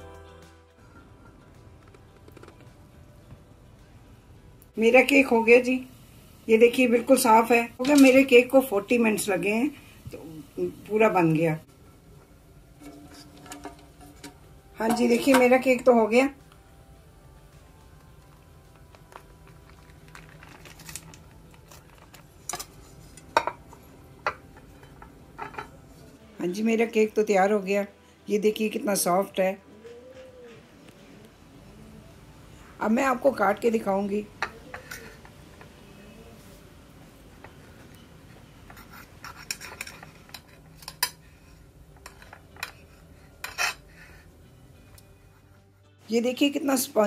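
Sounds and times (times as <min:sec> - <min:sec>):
plates clinking: 0:12.8 - 0:15.6, 0:22.5 - 0:26.0
knife scraping ceramic plate: 0:38.7 - 0:41.1, 0:42.1 - 0:43.9.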